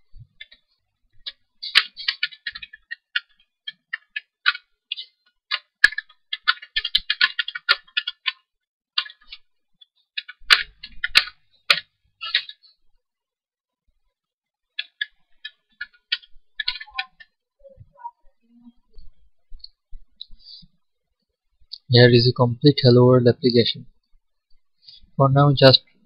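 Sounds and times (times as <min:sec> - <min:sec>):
computer keyboard typing: 0:01.2 - 0:08.4, 0:09.0 - 0:09.4, 0:14.8 - 0:17.3.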